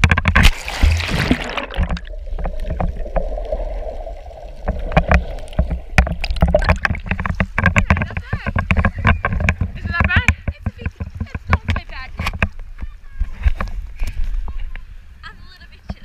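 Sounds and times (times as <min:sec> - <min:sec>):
water knocking against camera case: 0:00.0 - 0:00.6, 0:01.4 - 0:03.5, 0:04.6 - 0:12.9
muffled underwater rushing: 0:00.0 - 0:10.0
sea water splashing: 0:00.0 - 0:12.4.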